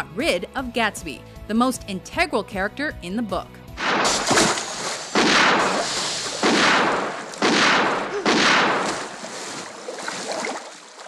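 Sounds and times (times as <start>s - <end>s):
pistol shots: 3.8s - 9.2s.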